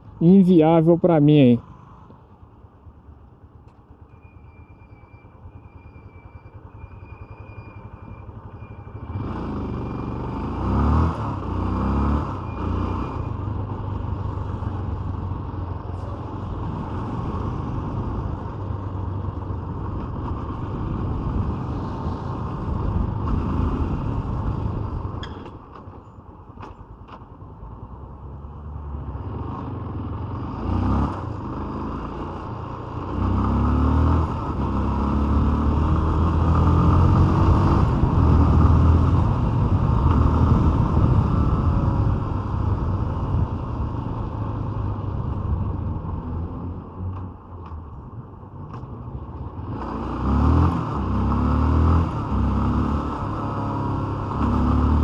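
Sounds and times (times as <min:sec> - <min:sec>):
motorcycle engine revving: 0:08.9 - 0:15.2, 0:29.0 - 0:46.6, 0:49.6 - 0:55.0.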